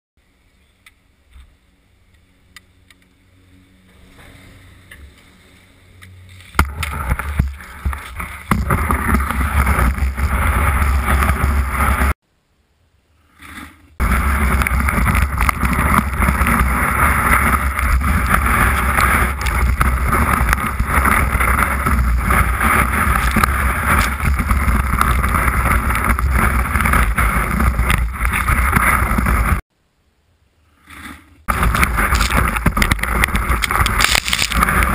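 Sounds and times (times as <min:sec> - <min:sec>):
skis scraping over packed snow: 0:06.3 - 0:12.2, 0:13.3 - 0:29.6, 0:30.9 - 0:34.9
wind on microphone: 0:14.0 - 0:29.6.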